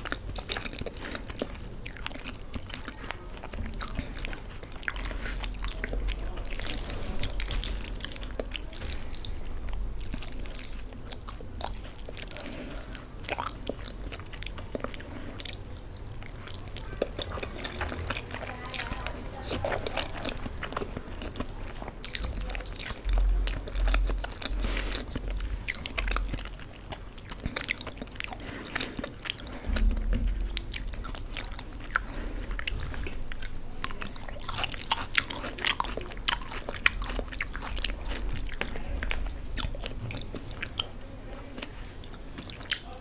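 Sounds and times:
mouth chewing noodles: 0.0 - 43.0
low thumps: 29.6 - 33.0.

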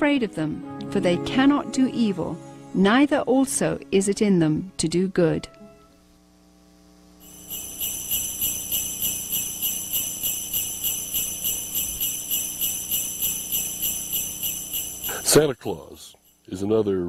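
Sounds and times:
sleigh bells jangling: 7.2 - 16.5.

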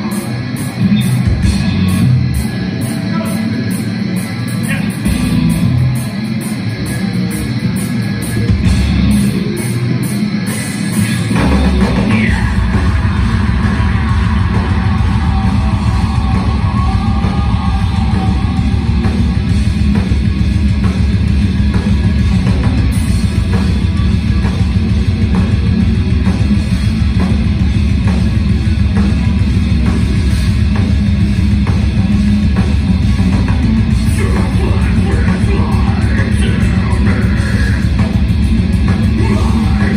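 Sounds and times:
heavy metal band playing live: 0.0 - 39.9.

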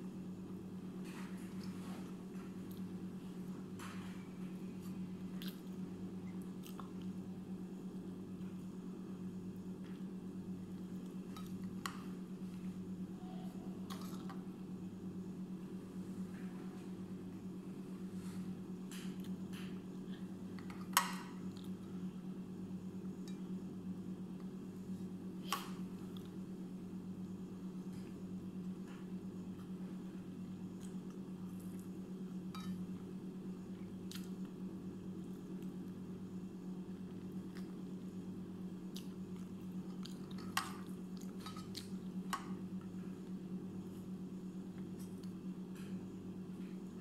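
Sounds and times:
appliance humming: 0.0 - 47.0.

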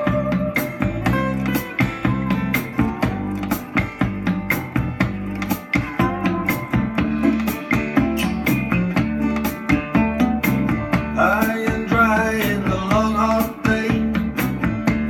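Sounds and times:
rock music through speakers: 0.0 - 15.0
steady drum beat: 0.0 - 15.0.

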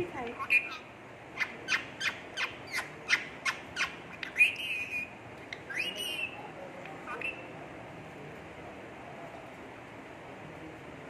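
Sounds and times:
parakeet calling: 0.2 - 7.5.

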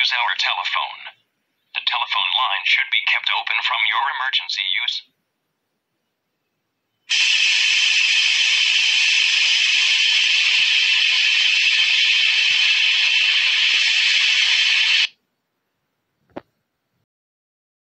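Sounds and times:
television static hiss: 0.0 - 5.2, 7.1 - 15.2.

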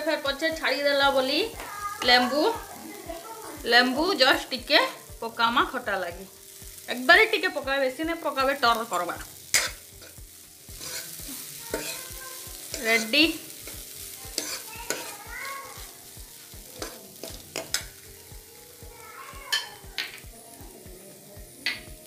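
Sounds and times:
light sizzle of frying: 0.0 - 22.0
ladle scraping a frying pan: 8.8 - 10.2.

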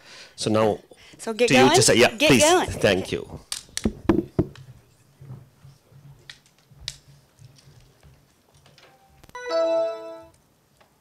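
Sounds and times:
short electronic chime: 9.4 - 10.3.

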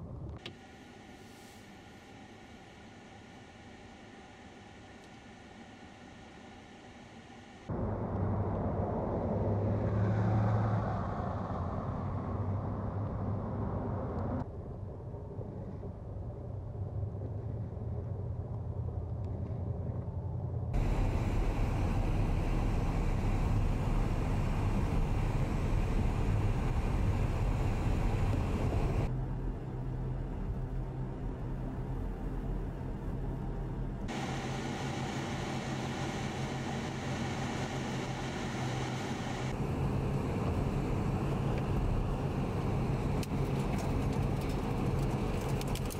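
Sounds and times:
vehicle engine and tyre noise: 7.7 - 45.9
snowplow truck on slushy road: 20.8 - 29.6, 34.1 - 45.9.

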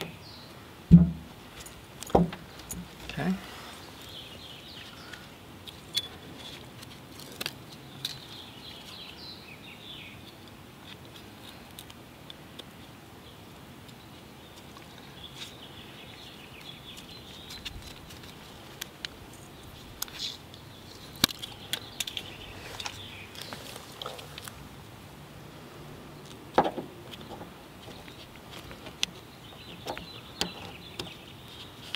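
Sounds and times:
small birds chirping: 0.0 - 24.8, 26.1 - 31.9
gloved hands rustling: 13.9 - 24.7, 26.3 - 31.9.

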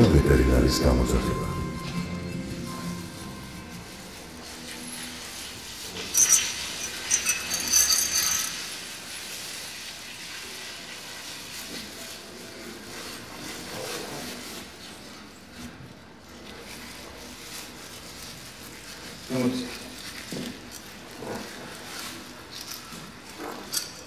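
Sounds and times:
metal chains clinking: 3.4 - 9.0, 22.5 - 24.0.

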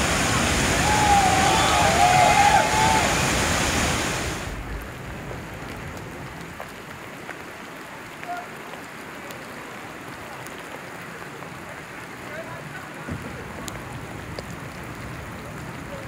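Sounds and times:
whitewater rapid roaring: 0.0 - 5.1
calm river water hissing: 0.0 - 11.7.

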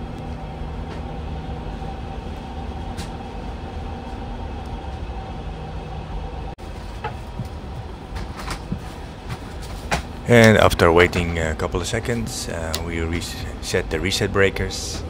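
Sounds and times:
cooling fans running: 0.0 - 15.0.

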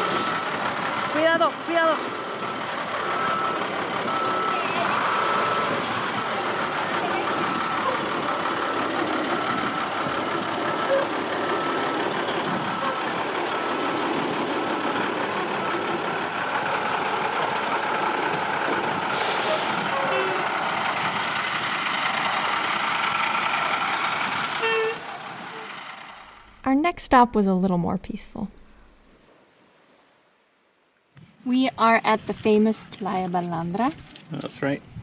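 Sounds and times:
diesel bus engine under load: 0.0 - 27.3
reversing beeper: 3.1 - 5.7.

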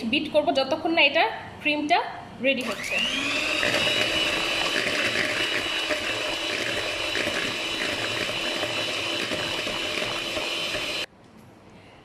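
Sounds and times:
electric mixer motor whine: 2.6 - 11.1
liquid churning: 2.8 - 11.1.

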